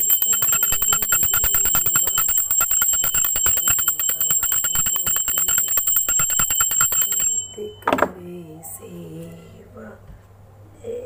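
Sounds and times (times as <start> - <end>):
hand bell rung rapidly: 0.0 - 7.9.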